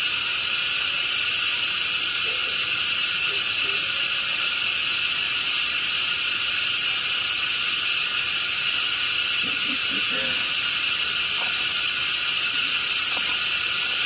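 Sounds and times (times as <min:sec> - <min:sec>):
insect chorus buzzing: 0:00.0 - 0:14.0.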